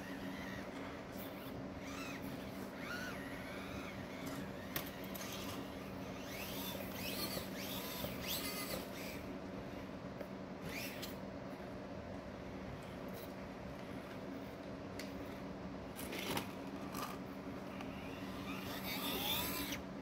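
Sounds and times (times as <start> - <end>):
small electric motor whining: 0.0 - 9.9, 10.6 - 11.2, 16.2 - 19.9.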